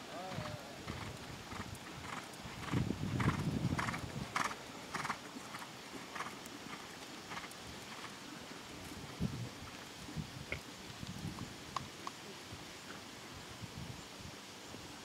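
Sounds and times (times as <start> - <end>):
horse hoofbeats on sand: 0.3 - 8.2.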